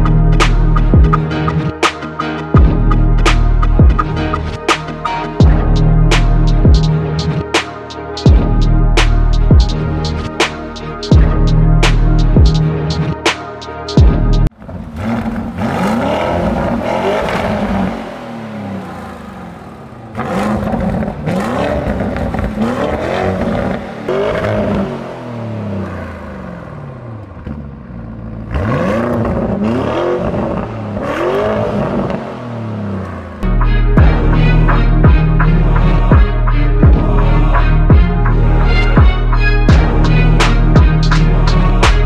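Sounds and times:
car engine idling: 14.4s - 29.8s
car engine revving: 14.4s - 42.0s.

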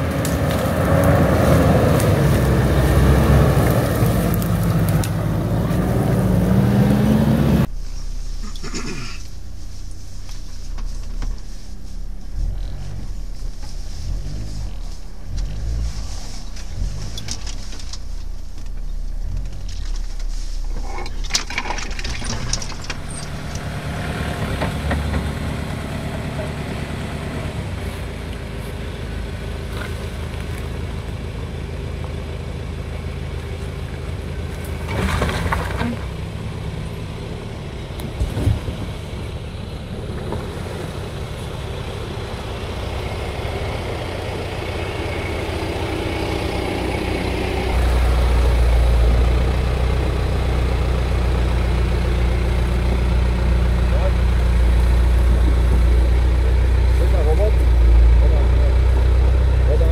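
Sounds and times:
engine running at low revs: 0.0s - 59.9s
short rush of noise: 7.6s - 24.6s.

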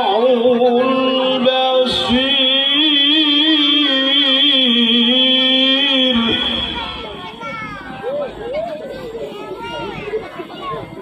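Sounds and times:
man reciting melodically over pa: 0.0s - 7.5s.

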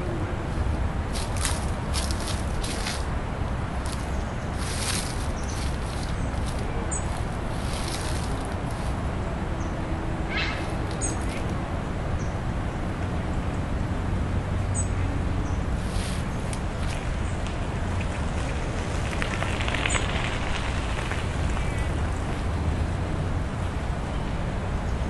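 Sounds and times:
low background rumble: 0.0s - 10.4s.

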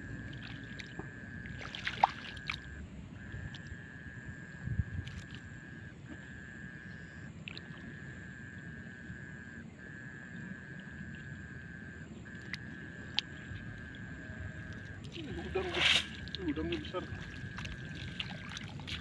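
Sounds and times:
water sloshing: 0.0s - 3.8s, 10.1s - 19.0s.

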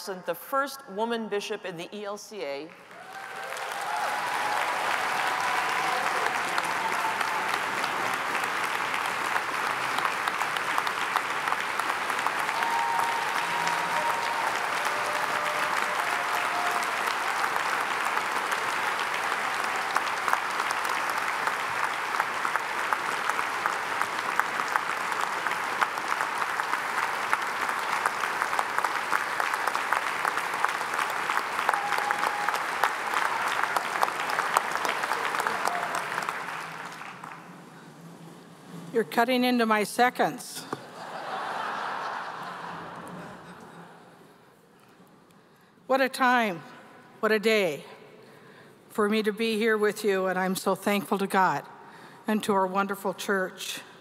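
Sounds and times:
large audience clapping: 2.7s - 38.8s, 40.7s - 44.2s.

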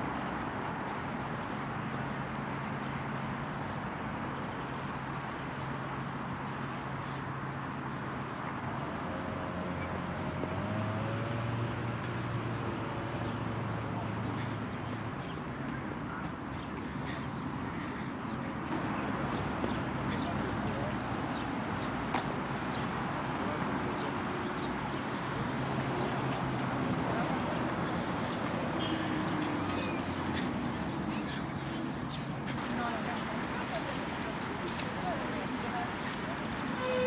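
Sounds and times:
distant traffic: 0.0s - 37.0s
faint voices: 12.6s - 37.0s.

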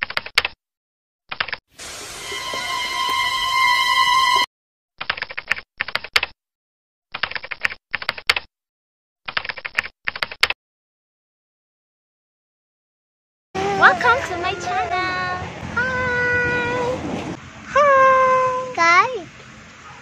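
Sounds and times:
loud steady tone with hiss: 1.8s - 4.4s.

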